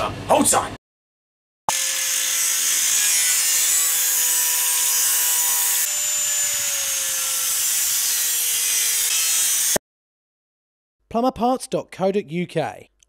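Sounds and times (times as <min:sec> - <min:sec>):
angle grinder cutting steel: 0:01.7 - 0:09.8.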